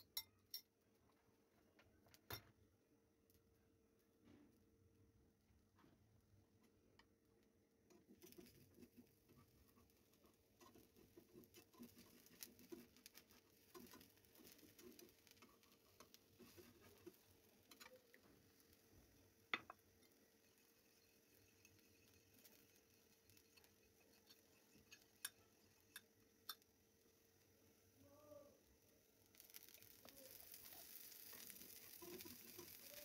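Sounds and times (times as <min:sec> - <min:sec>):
spatula working in pan: 0:07.9 - 0:26.7, 0:29.3 - 0:33.0
omelette crackling in oil: 0:08.0 - 0:27.1, 0:29.1 - 0:33.0.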